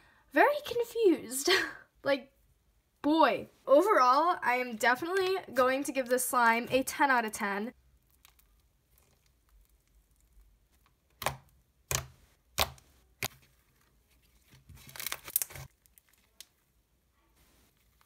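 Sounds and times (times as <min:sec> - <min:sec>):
slime crackling: 0:07.8 - 0:16.8.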